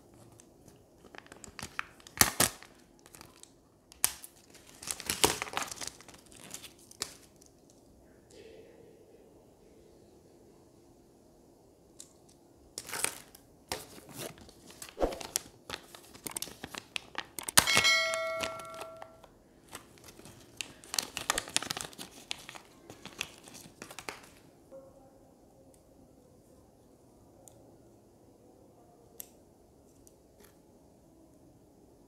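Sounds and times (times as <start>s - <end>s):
plastic bags crinkling: 1.0s - 7.5s, 12.8s - 24.4s
short bell-like chime: 17.7s - 19.2s.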